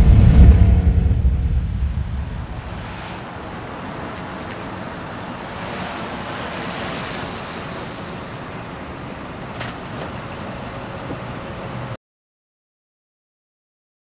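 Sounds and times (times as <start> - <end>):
car driving past: 0.0 - 3.4.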